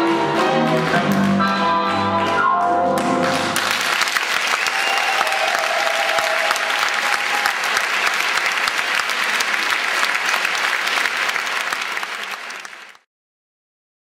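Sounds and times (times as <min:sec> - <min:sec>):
audience applauding: 0:03.0 - 0:13.1.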